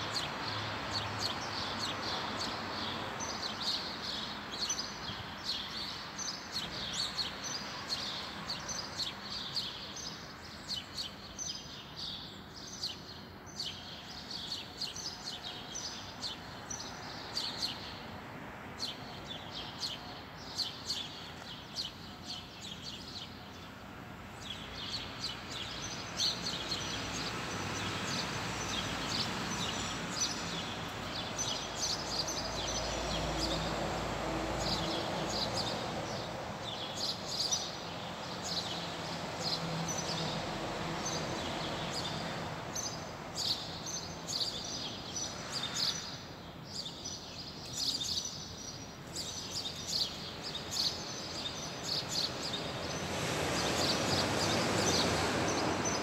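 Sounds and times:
outdoor background noise: 0:00.0 - 0:56.0
small birds chirping: 0:18.8 - 0:33.8, 0:34.5 - 0:56.0.

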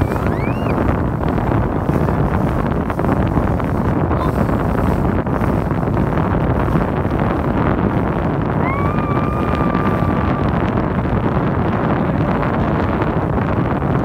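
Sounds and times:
boat rushing over choppy water: 0:00.0 - 0:14.0
wind buffeting microphone: 0:00.0 - 0:14.0
thin whistle-like tone: 0:00.2 - 0:00.7.

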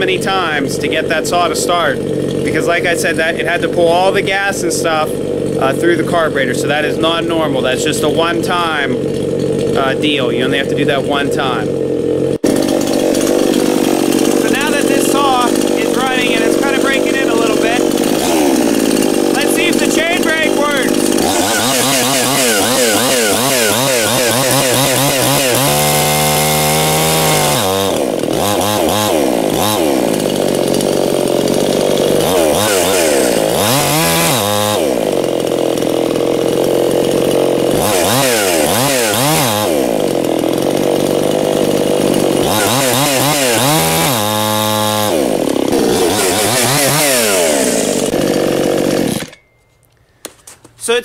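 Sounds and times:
chainsaw revving: 0:00.0 - 0:49.6.

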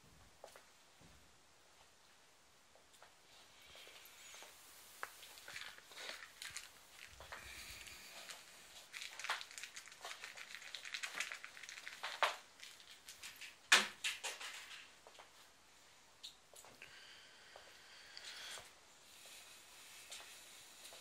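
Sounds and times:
object crinkling in hand: 0:03.3 - 0:14.9.

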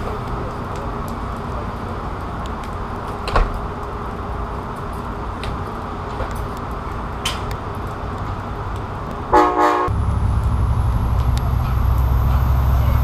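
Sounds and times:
diesel locomotive engine rumbling: 0:00.0 - 0:13.0
train horn toots: 0:09.3 - 0:09.9.

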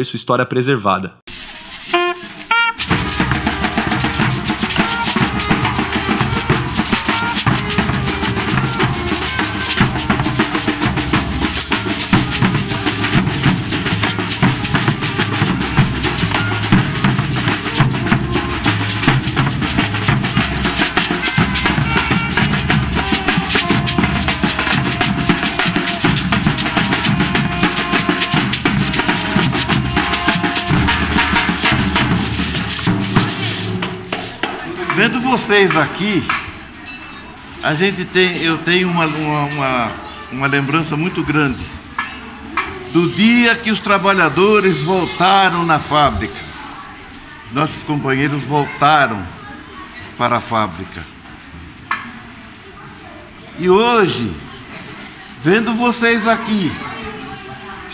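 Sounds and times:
bass drum: 0:01.3 - 0:35.2
saxophone: 0:01.8 - 0:34.1
snare drums beating: 0:01.8 - 0:36.5.

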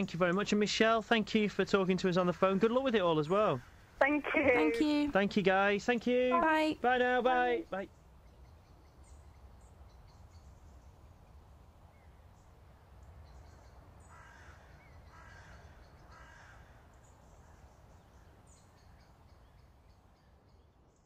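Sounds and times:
harsh bird calls: 0:13.5 - 0:20.4.

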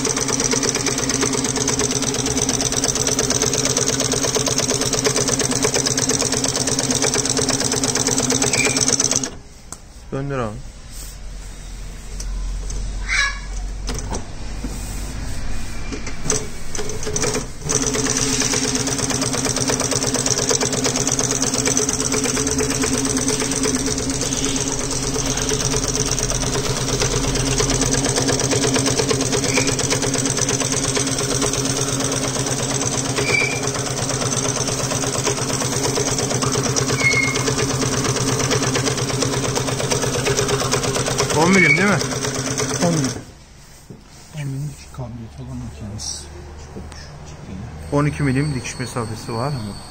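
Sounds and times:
industrial sewing machine running: 0:00.0 - 0:09.4, 0:16.2 - 0:43.3.

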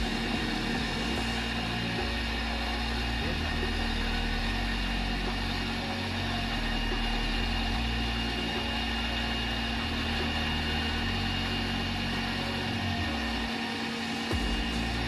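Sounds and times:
constant tone: 0:00.0 - 0:15.0
generator mechanical hum: 0:00.0 - 0:15.0.

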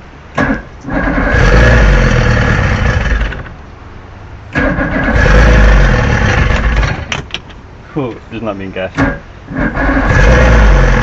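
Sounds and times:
outboard motor electric starter cranking: 0:00.3 - 0:03.6, 0:04.5 - 0:07.4, 0:09.0 - 0:11.0.

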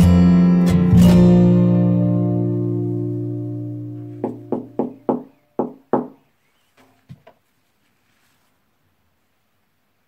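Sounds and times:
knuckles knocking on wall: 0:04.2 - 0:06.2.

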